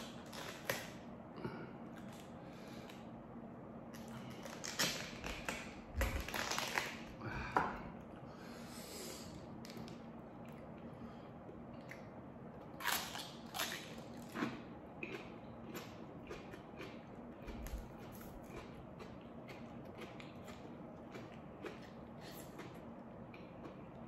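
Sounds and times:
quiet eating sounds: 0.0s - 3.2s, 3.8s - 24.0s
cabbage leaves crackling as torn: 4.4s - 7.1s, 12.8s - 14.3s.

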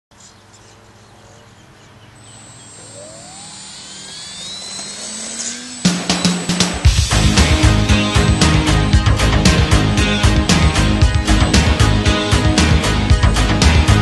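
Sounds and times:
model plane motor revving: 1.5s - 14.0s
loud music: 5.1s - 14.0s.

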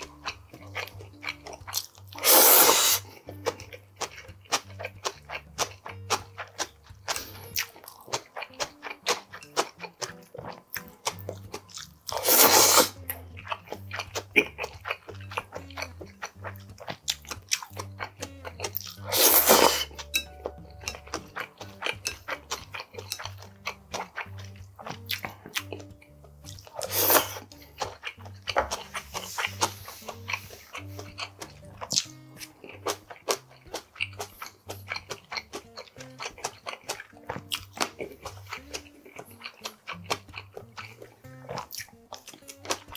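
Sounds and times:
chewing and crunching noodles: 0.0s - 42.9s
loud slurps: 2.2s - 3.1s, 12.1s - 13.0s, 19.0s - 20.0s, 26.8s - 27.4s.

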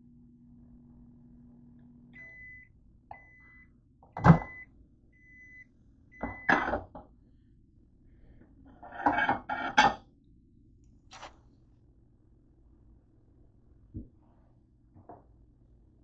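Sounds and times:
microwave oven hum: 0.0s - 16.0s
microwave beeps: 2.1s - 6.8s.

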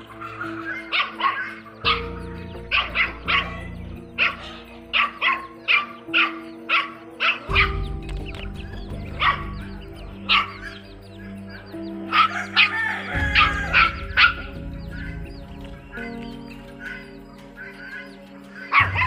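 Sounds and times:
background music: 0.0s - 19.0s
puppy yapping: 0.1s - 7.9s, 9.2s - 10.8s.

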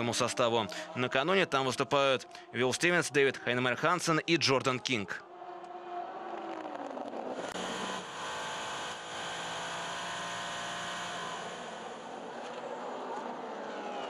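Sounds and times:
race car engine running: 7.4s - 12.3s.

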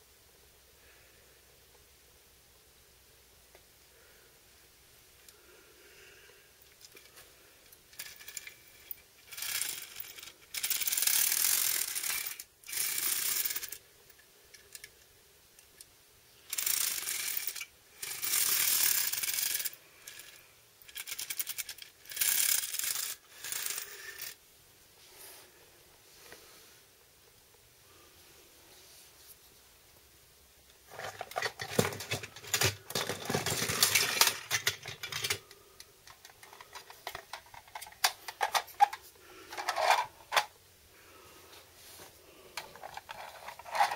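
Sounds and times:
toy excavator rattling and clicking: 6.8s - 15.0s, 15.7s - 24.4s, 30.9s - 40.5s, 42.6s - 43.9s.

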